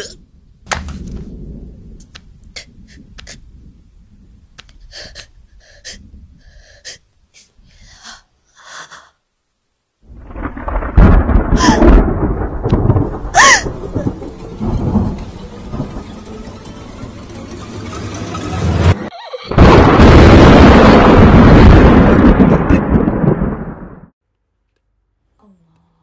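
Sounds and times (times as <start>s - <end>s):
loud rumbling rustling noise: 0.2s - 7.9s, 10.0s - 24.1s
sharp breaths and gasps: 4.8s - 9.2s
high cry: 13.4s - 13.8s.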